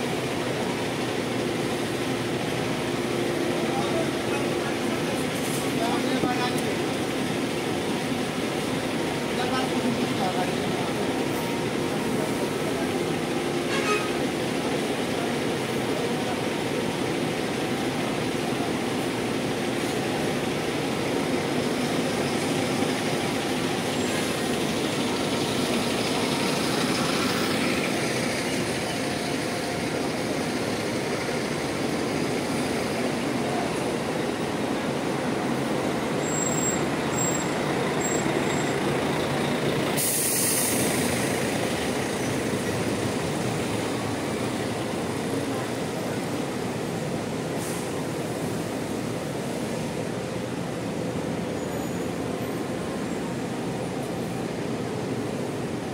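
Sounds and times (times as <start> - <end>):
diesel bus engines rumbling: 0.0 - 55.9
air brake hiss: 40.0 - 41.3, 47.6 - 48.0.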